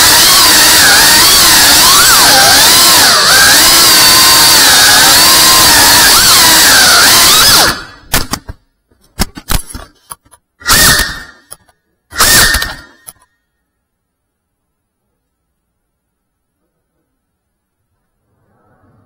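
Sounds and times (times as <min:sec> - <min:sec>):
drone motors whining: 0:00.0 - 0:08.1, 0:10.6 - 0:11.6, 0:12.2 - 0:13.2.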